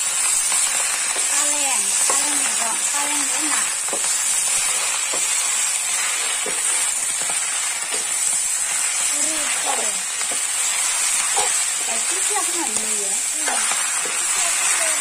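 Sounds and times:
greens sizzling in a wok: 0.0 - 15.0
metal spatula scraping a pan: 8.8 - 15.0.

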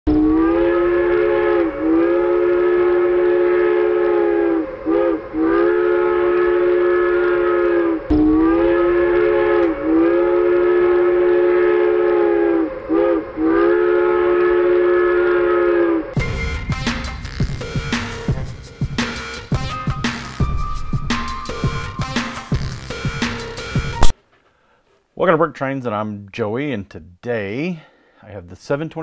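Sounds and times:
steam locomotive chime whistle: 0.1 - 22.1.

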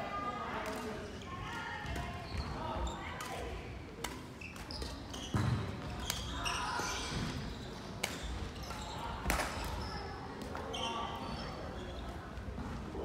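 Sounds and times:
shoes squeaking on court floor: 2.2 - 3.2, 4.4 - 12.4.

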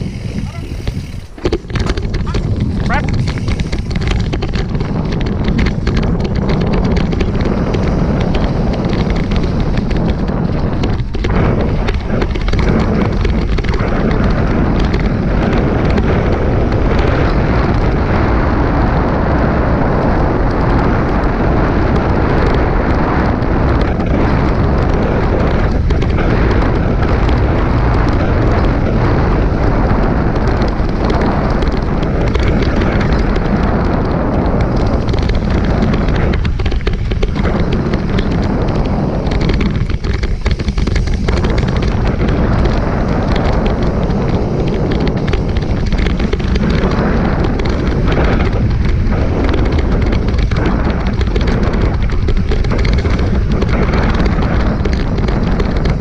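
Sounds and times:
wind rumble on camera: 0.0 - 56.0
knocks and rattles of camera mount: 0.9 - 7.8.

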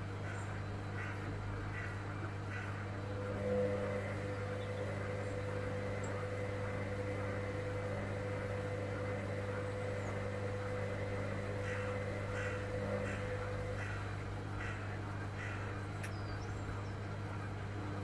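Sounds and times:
steady motor hum: 0.0 - 18.0.

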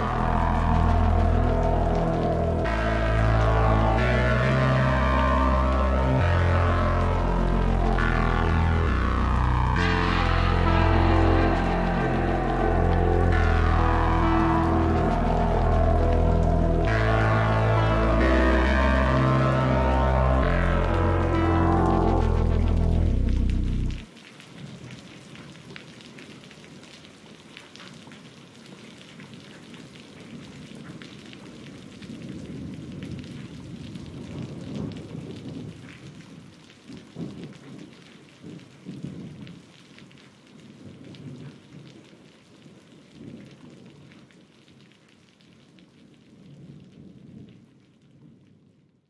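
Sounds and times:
rolling thunder rumbles: 0.0 - 24.1
steady rain falling: 0.0 - 49.0.

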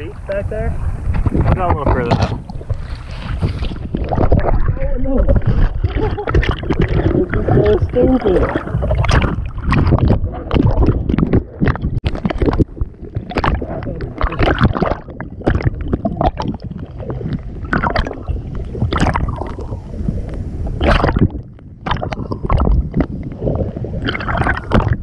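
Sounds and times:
steady low rumble: 0.0 - 25.0
water slapping against surfboard: 1.1 - 18.2, 20.8 - 23.2.

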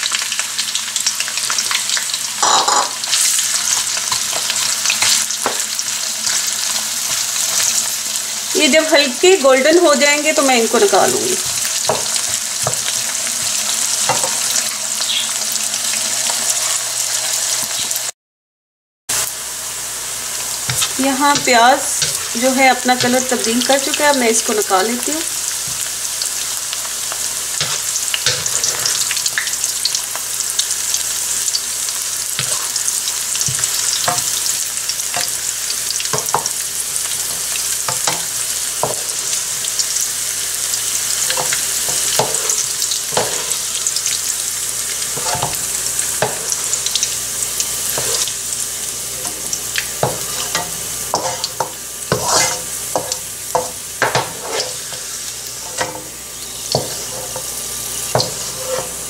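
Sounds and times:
onions sizzling in oil: 0.0 - 18.1, 19.1 - 59.0
wooden spoon scraping pan: 20.7 - 23.3, 27.6 - 29.3, 32.4 - 34.6, 41.2 - 43.6, 45.0 - 46.6, 47.8 - 48.3, 49.2 - 56.1, 56.7 - 57.5, 58.1 - 59.0.

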